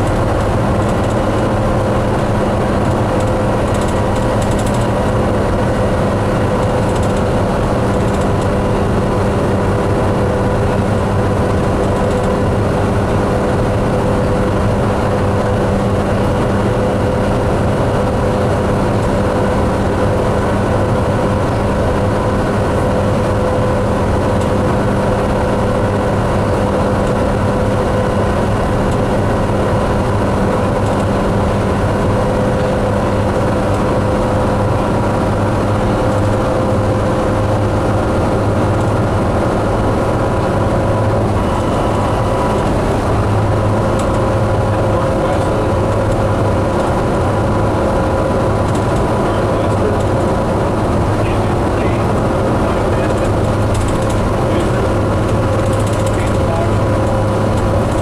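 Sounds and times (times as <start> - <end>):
diesel bus engine running: 0.0 - 58.0
road noise: 0.0 - 58.0.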